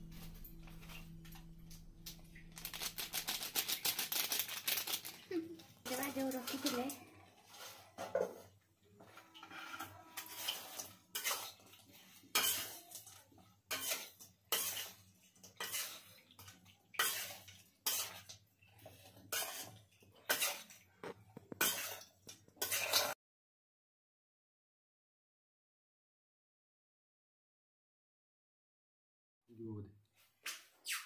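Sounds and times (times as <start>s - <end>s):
metal spatula scraping a wok: 6.4s - 23.2s.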